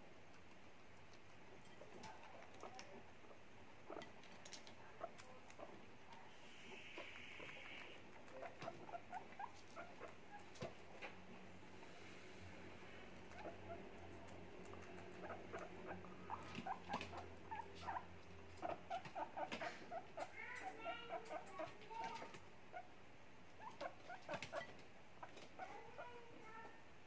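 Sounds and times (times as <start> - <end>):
guinea pigs crunching food: 0.0 - 11.2, 12.8 - 22.8
low steady hum: 0.0 - 20.5
guinea pig squeaks: 0.5 - 11.1, 13.2 - 22.9, 23.6 - 26.2.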